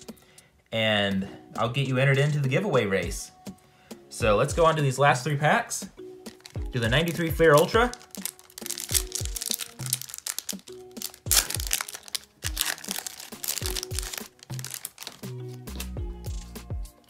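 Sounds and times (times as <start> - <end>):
background music: 0.0 - 17.0
foil wrapper crinkling and tearing: 6.3 - 15.9.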